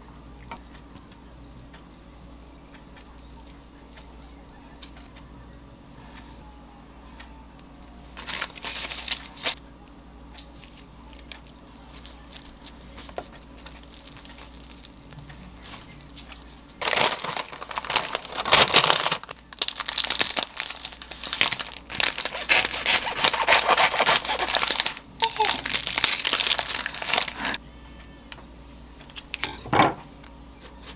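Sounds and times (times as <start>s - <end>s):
paper crinkling and rustling: 8.1s - 9.6s, 10.3s - 27.6s.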